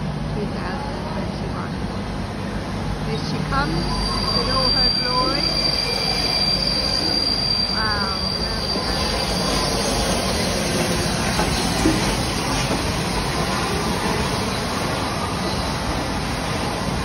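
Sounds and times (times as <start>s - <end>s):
train rumbling past: 0.0s - 17.0s
high wheel squeal: 3.3s - 16.0s.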